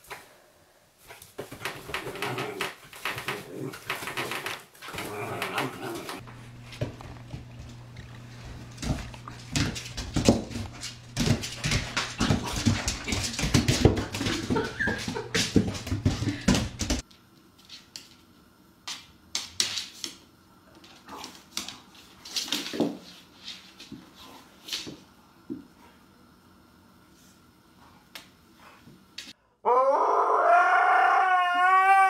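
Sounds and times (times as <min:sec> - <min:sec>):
paws tapping on tile floor: 0:01.0 - 0:18.3, 0:18.9 - 0:25.7.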